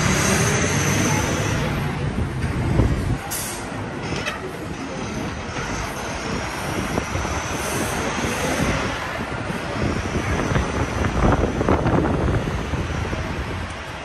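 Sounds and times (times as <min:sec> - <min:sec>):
rumble of passing vehicles: 0:00.0 - 0:14.0.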